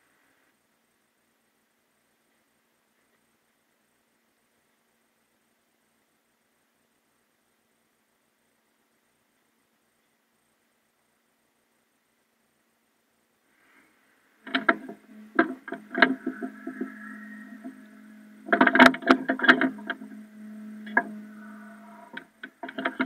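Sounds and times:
machine hum: 14.2 - 23.0
sharp metallic clanks and knocks: 14.4 - 23.0.

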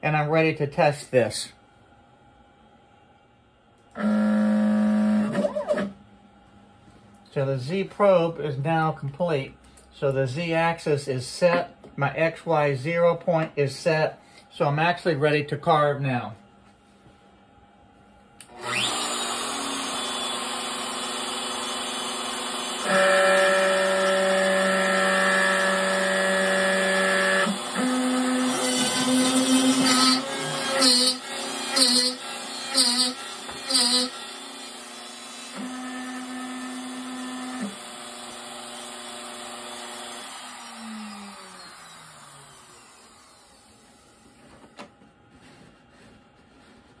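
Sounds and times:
router carving wood: 4.0 - 5.9, 18.5 - 44.3.

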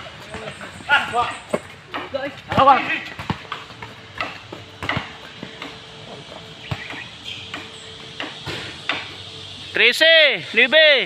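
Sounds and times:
basketball bouncing on concrete: 0.0 - 5.9, 6.6 - 8.6.

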